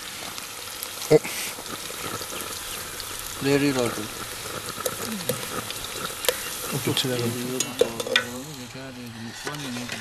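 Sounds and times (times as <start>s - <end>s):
food sizzling in a pot: 0.0s - 10.0s
voice talking: 5.0s - 5.7s, 6.6s - 10.0s
metal spoon clinking on pot: 7.6s - 8.4s.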